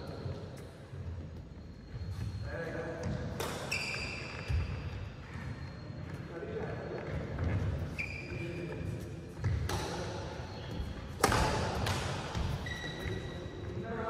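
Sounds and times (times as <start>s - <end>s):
shoes squeaking on court: 0.0s - 13.8s
racket hitting shuttlecock: 3.2s - 4.2s, 9.4s - 10.2s, 11.1s - 12.8s.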